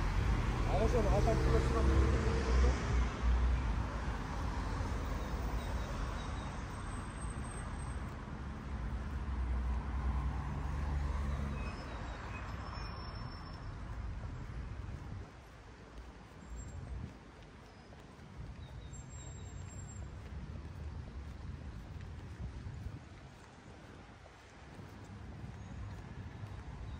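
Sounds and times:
passing cars rumbling: 0.0s - 13.2s.

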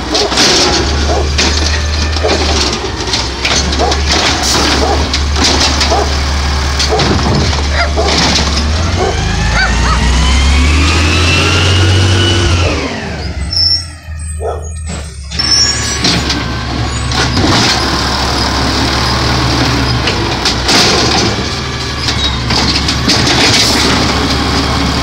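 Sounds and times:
engine revving whine: 0.0s - 25.0s
truck engine humming: 0.0s - 25.0s.

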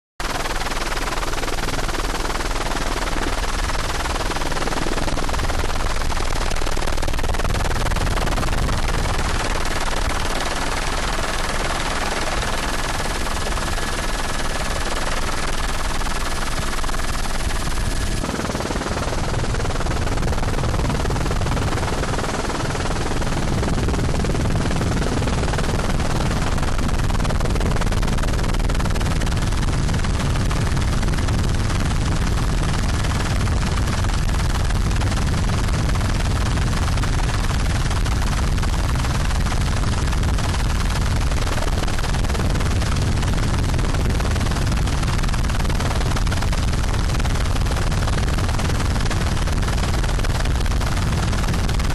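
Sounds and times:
aircraft engine rattling: 6.4s - 27.0s.

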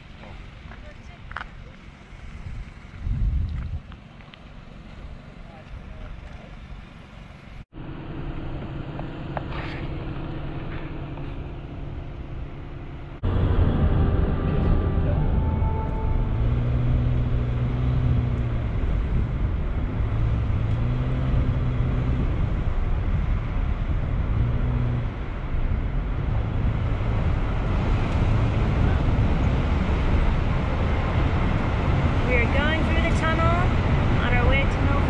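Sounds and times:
car engine hum: 0.0s - 35.0s
tyre road noise: 0.0s - 35.0s.

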